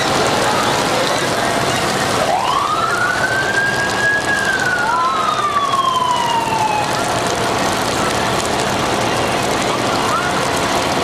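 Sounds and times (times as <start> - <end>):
fire engine siren wailing: 0.0 - 11.0.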